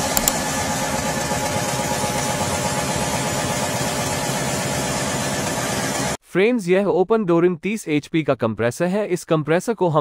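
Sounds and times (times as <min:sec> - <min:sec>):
refrigeration compressor running: 0:00.0 - 0:06.2.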